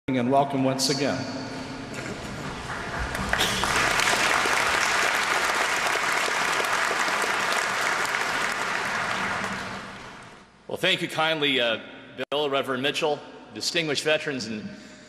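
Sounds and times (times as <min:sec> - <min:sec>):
audience applauding: 0:02.0 - 0:10.5.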